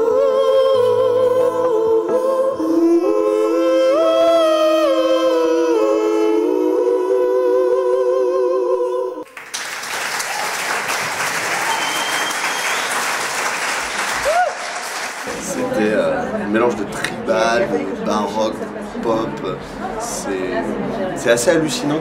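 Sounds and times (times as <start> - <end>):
voices singing in harmony: 0.0 - 9.3
audience applauding: 9.3 - 15.5.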